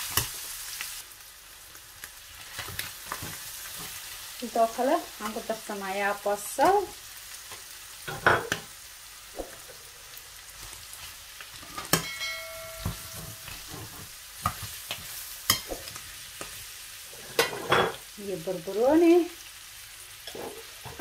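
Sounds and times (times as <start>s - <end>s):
food sizzling in a frying pan: 0.0s - 21.0s
utensils scraping and knocking pan: 11.5s - 16.0s, 17.1s - 18.0s, 20.3s - 21.0s
pan ringing: 11.8s - 13.8s.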